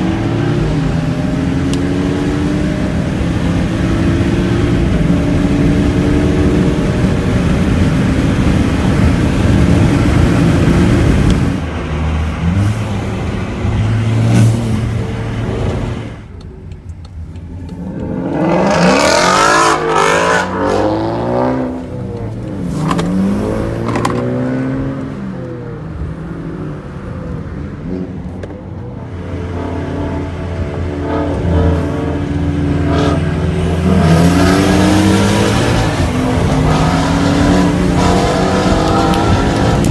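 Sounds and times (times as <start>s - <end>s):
car engines at full throttle: 0.0s - 39.9s
road noise: 0.0s - 39.9s
car accelerating through gears: 17.4s - 25.6s, 30.8s - 39.9s.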